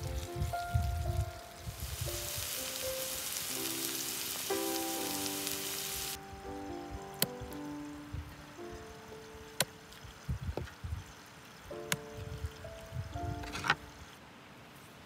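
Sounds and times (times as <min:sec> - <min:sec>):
food sizzling in oil: 0:00.0 - 0:06.2.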